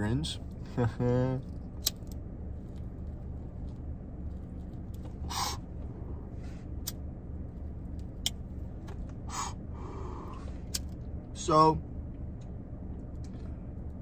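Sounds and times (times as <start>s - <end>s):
steady low hum: 0.0s - 14.0s
breathy draws on a blunt: 9.3s - 10.6s.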